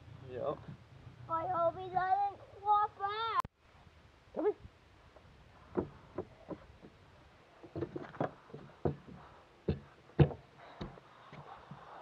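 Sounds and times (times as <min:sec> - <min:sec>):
knocks and bumps on a boat: 0:07.6 - 0:11.8.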